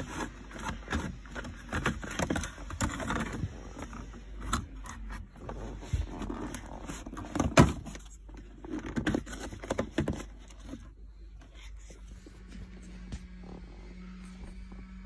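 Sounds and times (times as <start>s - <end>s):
plastic trim clicking and scraping: 0.0s - 10.9s
faint low hum: 0.0s - 15.0s.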